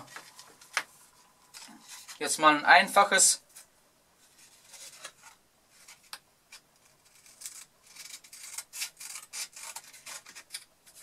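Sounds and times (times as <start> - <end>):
scissors cutting sandpaper: 7.0 - 11.0.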